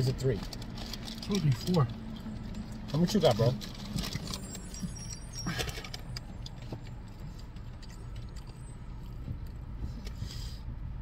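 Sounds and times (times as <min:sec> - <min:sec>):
low rumble inside car: 0:00.0 - 0:11.0
food packaging rustling: 0:00.2 - 0:08.6.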